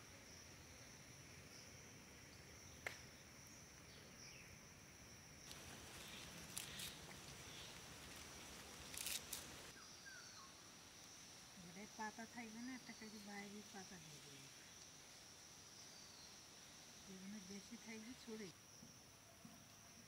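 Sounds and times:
high insect drone: 0:00.0 - 0:20.0
rustling of twigs and grass: 0:05.4 - 0:09.8.

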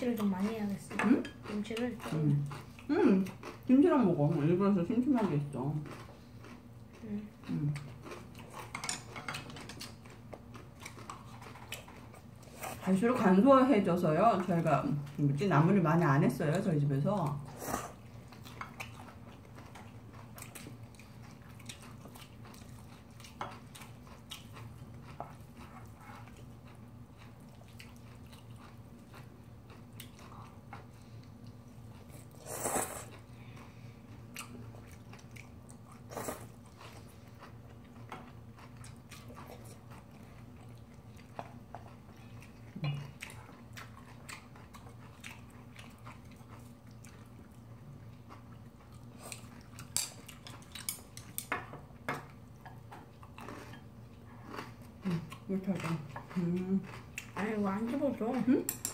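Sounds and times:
chewing and biting: 0:05.8 - 0:12.6, 0:17.8 - 0:32.4, 0:33.0 - 0:51.5, 0:53.0 - 0:58.2.

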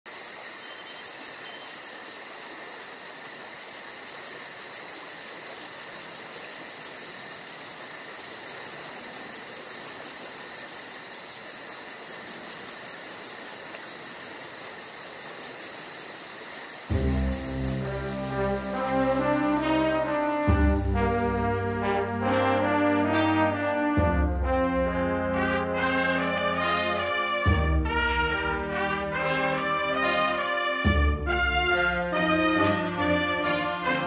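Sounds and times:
insects chirping: 0:00.1 - 0:27.3.

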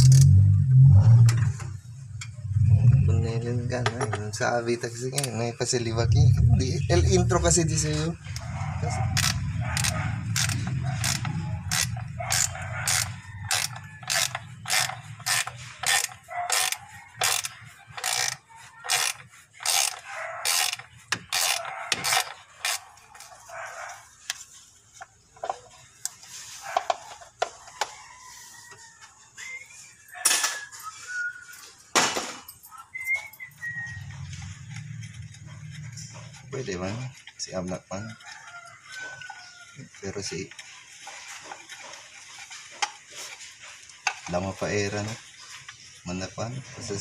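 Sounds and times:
ratchet wrench clicking: 0:00.0 - 0:00.4, 0:09.1 - 0:23.3.

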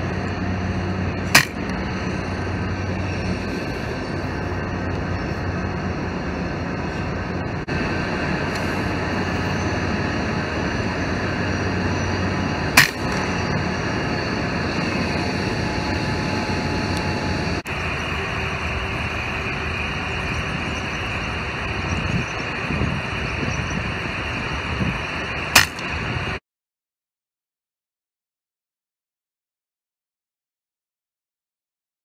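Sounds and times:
steady rushing noise: 0:00.0 - 0:26.4
air rifle shot: 0:01.3 - 0:01.7, 0:12.7 - 0:13.4, 0:25.6 - 0:25.9.

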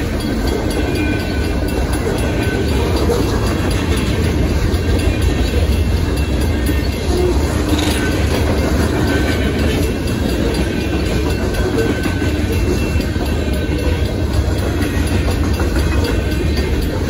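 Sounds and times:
freight train rumbling past: 0:00.0 - 0:17.0
wheels clacking over rails: 0:00.0 - 0:17.0.

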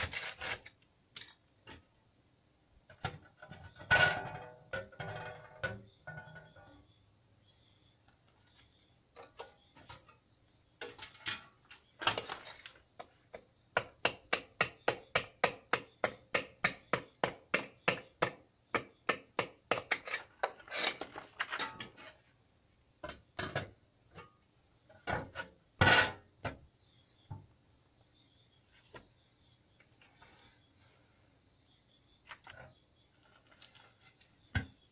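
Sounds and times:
scrapes: 0:19.9 - 0:22.4, 0:32.2 - 0:34.5.

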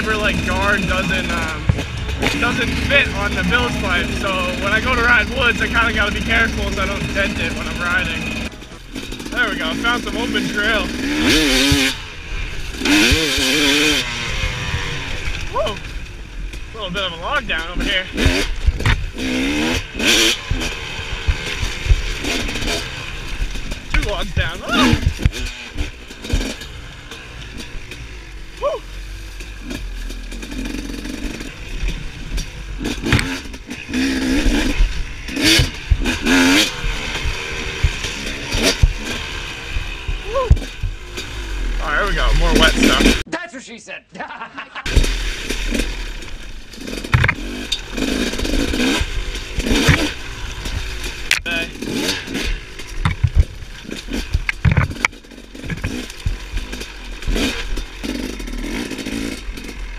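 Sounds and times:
dirt bike engine revving: 0:00.0 - 0:43.3, 0:44.8 - 0:59.9
sharp knocks: 0:47.0 - 0:47.8, 0:52.2 - 0:53.6.

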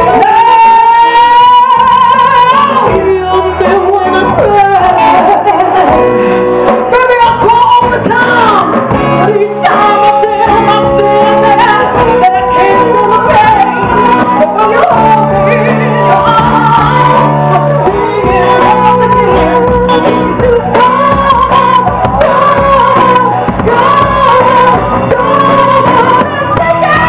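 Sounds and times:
drums: 0:00.0 - 0:27.0
guitar: 0:00.0 - 0:27.0
woman singing: 0:00.0 - 0:27.0.

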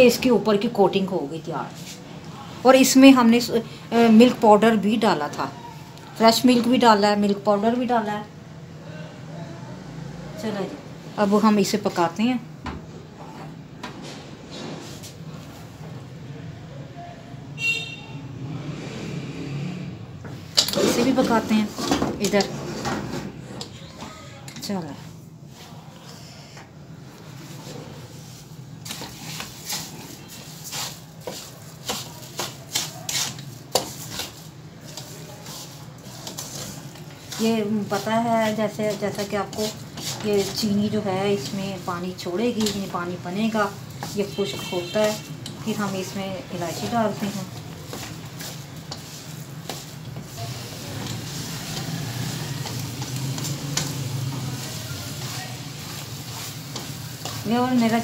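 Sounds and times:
spatula scraping metal pan: 0:20.6 - 0:23.8, 0:28.4 - 0:58.0
food sizzling: 0:27.5 - 0:58.0.

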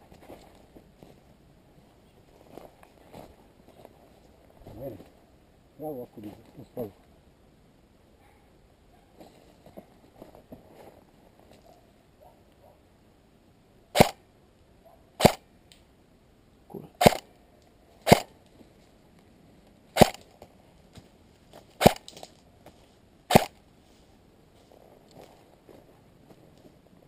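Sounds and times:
airsoft rifle shots: 0:14.0 - 0:14.2, 0:15.2 - 0:15.5, 0:17.0 - 0:17.3, 0:18.0 - 0:18.3, 0:20.0 - 0:20.2, 0:21.8 - 0:22.1, 0:23.3 - 0:23.6.

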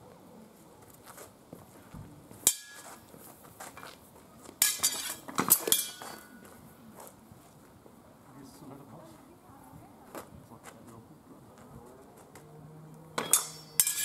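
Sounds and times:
metal swords clashing: 0:02.4 - 0:03.0, 0:04.6 - 0:06.4, 0:13.2 - 0:14.0.

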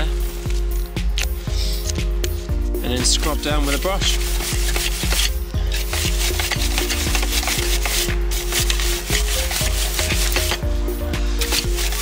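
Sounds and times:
brush scrubbing bicycle chain: 0:03.2 - 0:12.0.

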